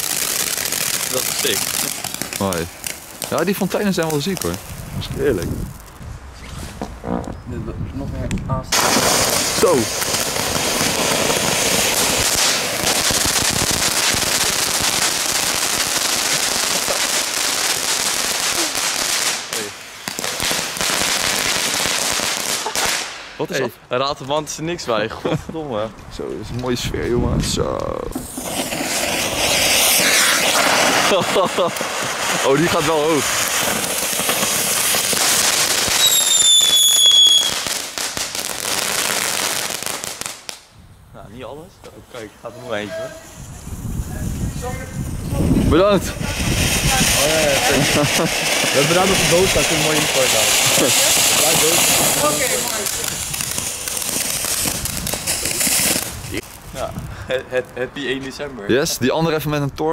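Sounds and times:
fireworks fountain hissing and crackling: 0.0s - 59.3s
falling firework whistle: 28.2s - 37.9s.

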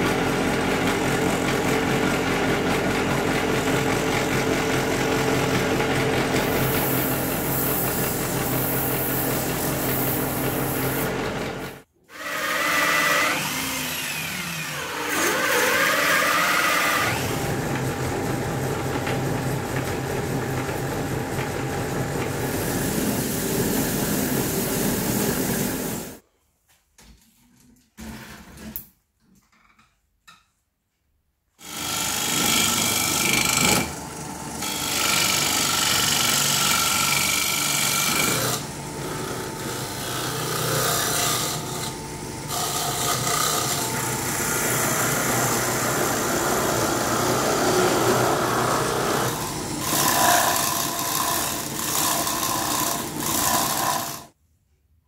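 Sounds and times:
lathe motor running: 31.9s - 54.2s
turning tool scraping wood: 40.0s - 41.9s, 42.5s - 54.3s.

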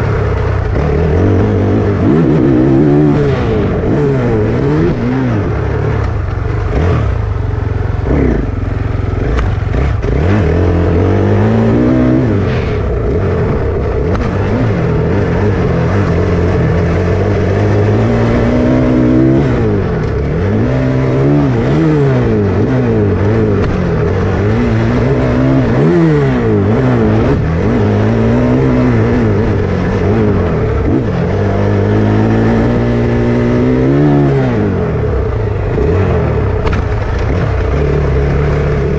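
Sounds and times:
dirt bike engine revving: 0.0s - 38.9s.

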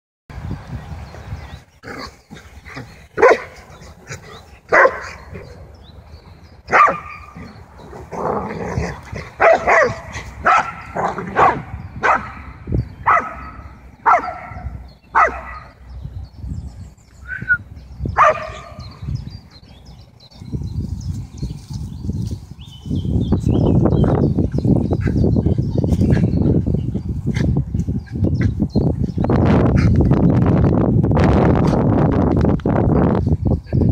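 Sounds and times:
dogs barking: 1.8s - 5.6s, 6.7s - 7.6s, 8.8s - 15.8s, 18.2s - 19.0s.

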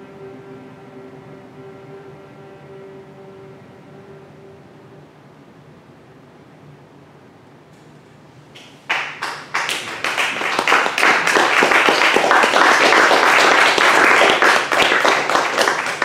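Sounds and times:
audience clapping: 8.6s - 16.0s.

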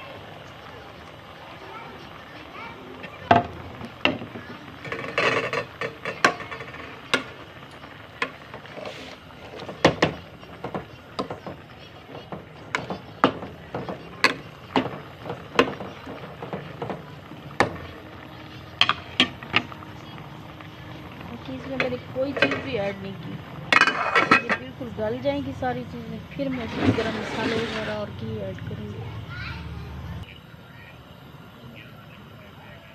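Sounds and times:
cooking fire crackling: 0.0s - 32.9s
spoon stirring in metal pot: 3.3s - 24.8s.

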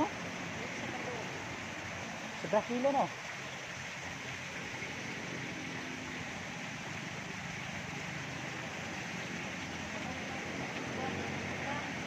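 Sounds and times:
flowing creek water: 0.0s - 12.0s.

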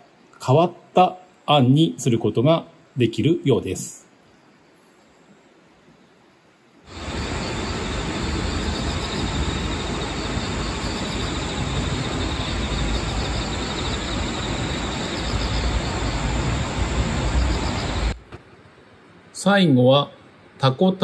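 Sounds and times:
fast pulsing high chirr: 6.9s - 18.2s
rushing wind: 6.9s - 18.3s.

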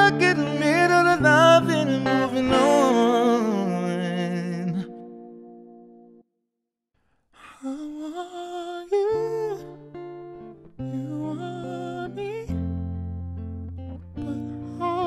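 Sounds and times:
man singing wordlessly with vibrato: 0.0s - 5.2s, 7.4s - 9.9s, 10.8s - 12.6s, 14.2s - 15.0s
electric guitar chords and notes: 0.0s - 6.2s, 9.5s - 15.0s.

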